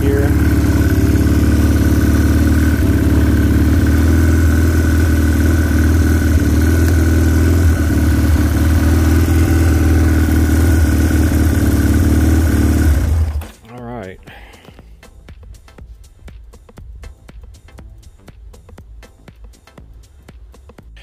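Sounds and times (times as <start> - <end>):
engine idling: 0.0 - 13.5.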